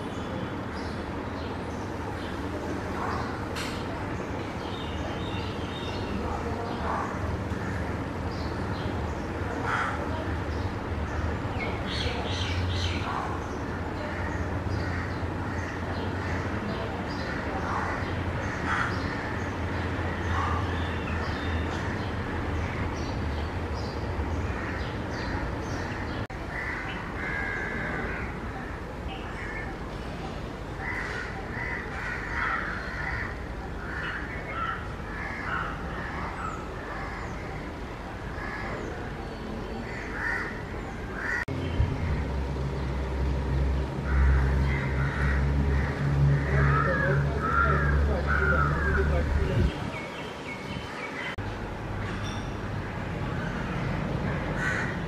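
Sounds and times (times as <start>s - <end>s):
crows cawing: 26.5s - 28.4s, 30.8s - 36.2s, 39.9s - 41.5s, 44.0s - 49.2s, 54.3s - 55.0s.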